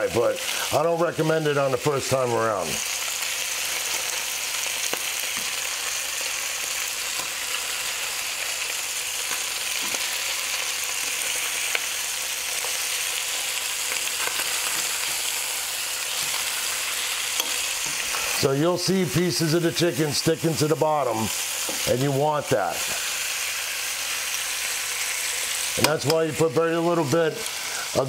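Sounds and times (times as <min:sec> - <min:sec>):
chicken sizzling in a pan: 0:00.0 - 0:28.0
metal tongs clicking on pan: 0:17.4 - 0:17.6.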